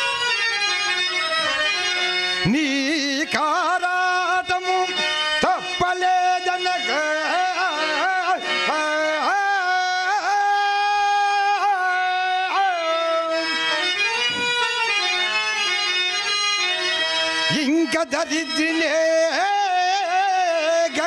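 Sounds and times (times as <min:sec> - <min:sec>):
harmonium melody: 0:00.0 - 0:21.0
man singing into a microphone: 0:02.4 - 0:14.6, 0:17.4 - 0:21.0.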